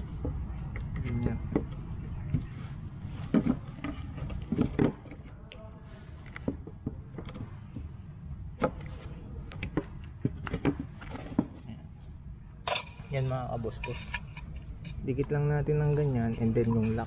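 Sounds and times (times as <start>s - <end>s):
desk panels knocking and creaking: 0.0s - 5.2s
low steady hum: 0.0s - 17.0s.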